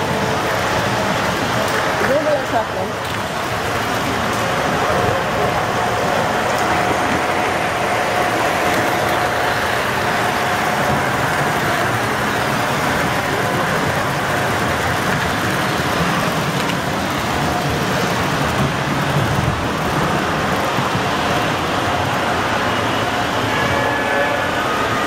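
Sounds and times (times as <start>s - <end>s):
model train rolling rumble: 0.0s - 25.0s.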